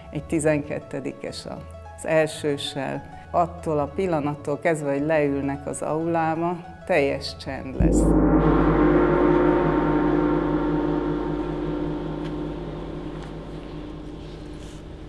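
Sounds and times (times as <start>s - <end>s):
metal gong ringing: 7.8s - 15.0s.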